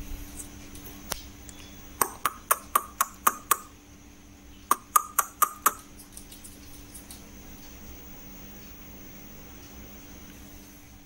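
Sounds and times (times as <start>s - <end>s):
sharp taps with ringing tone: 4.7s - 5.8s.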